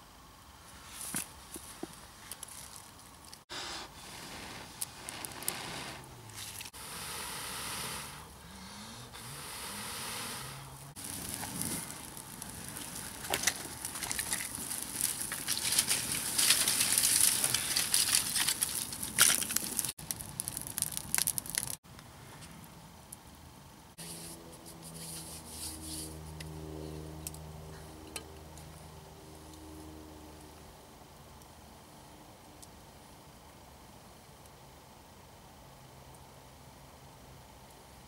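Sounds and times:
campfire crackling and hissing: 0.0s - 38.0s
sharp pops from fire: 11.0s - 21.8s.

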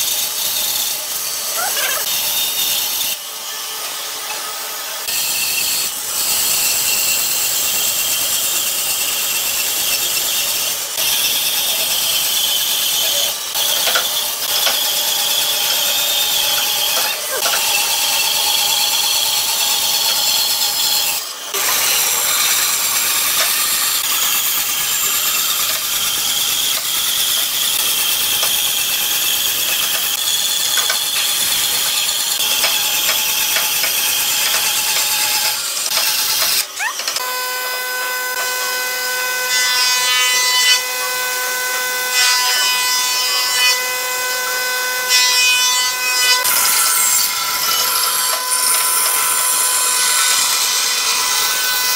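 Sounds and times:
bandsaw cutting wood: 0.0s - 51.9s
pitched whine of running saw: 0.0s - 51.9s.

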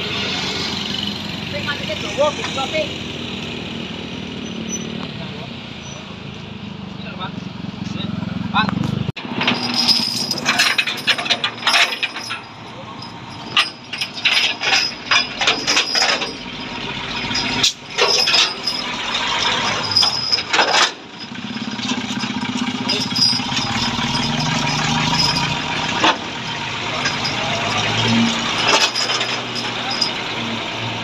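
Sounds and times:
truck engine running: 0.0s - 31.0s
metallic clinks: 9.3s - 26.3s, 26.9s - 31.0s.

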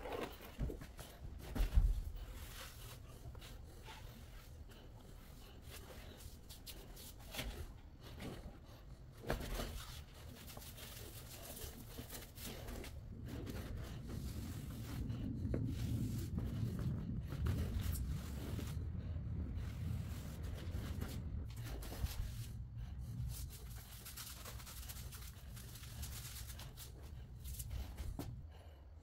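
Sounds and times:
sponge scrubbing floor tiles: 9.7s - 28.2s
low rumble: 10.5s - 28.8s.

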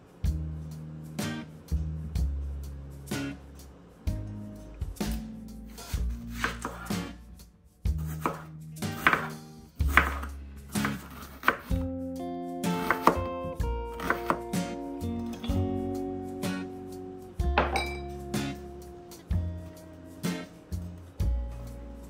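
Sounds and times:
background music: 0.0s - 22.0s
knife chopping on cutting board: 6.0s - 7.1s, 8.0s - 11.9s, 12.7s - 13.3s, 14.0s - 14.7s, 17.6s - 18.1s.

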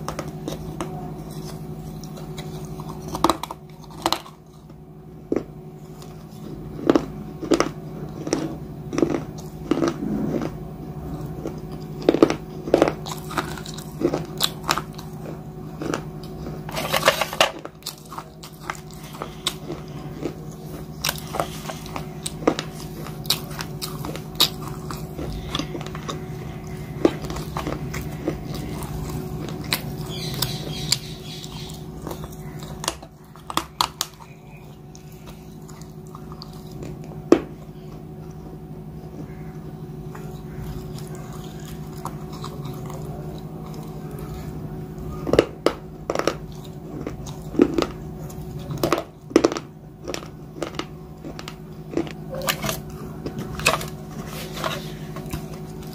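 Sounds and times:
person chewing crunchy paste: 0.0s - 55.9s
steady low hum: 0.0s - 55.9s.

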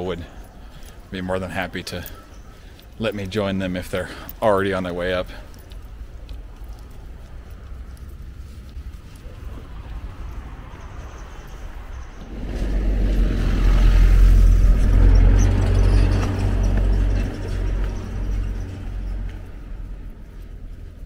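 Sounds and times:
car driving past: 9.2s - 20.8s.

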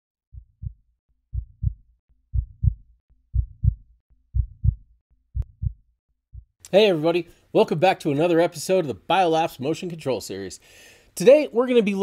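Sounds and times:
heartbeat thumps: 0.3s - 6.6s.

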